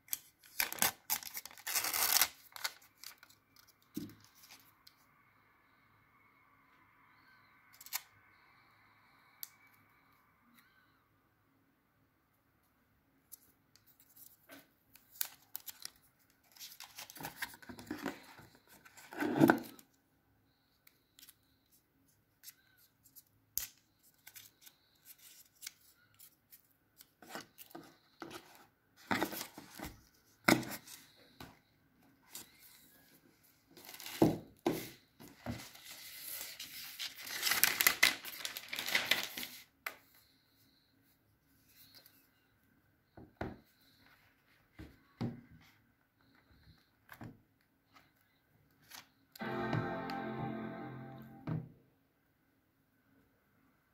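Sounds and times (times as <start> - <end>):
packaging rustling and tearing: 0.2 - 3.7, 35.7 - 39.6.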